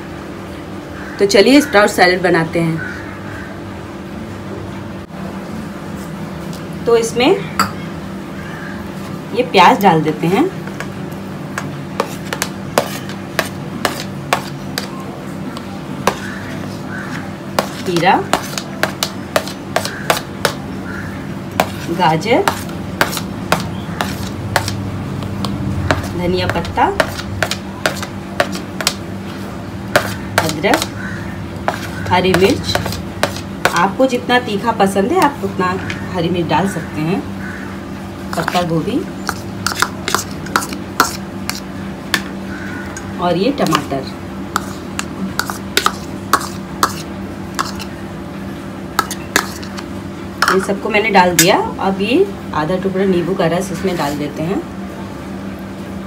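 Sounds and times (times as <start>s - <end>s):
steady low hum: 0.0s - 56.0s
metal spoon tapping a bowl: 7.6s - 7.8s, 49.0s - 49.7s, 50.4s - 50.6s
metal spoon scraping a bowl: 31.7s - 33.9s, 38.3s - 41.7s, 44.6s - 48.0s, 49.0s - 49.8s.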